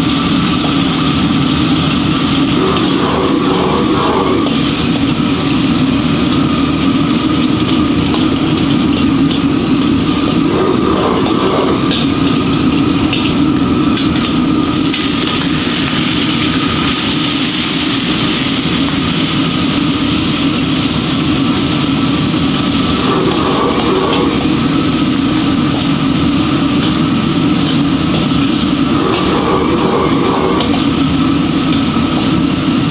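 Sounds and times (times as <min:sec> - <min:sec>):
machine droning: 0:00.0 - 0:32.9.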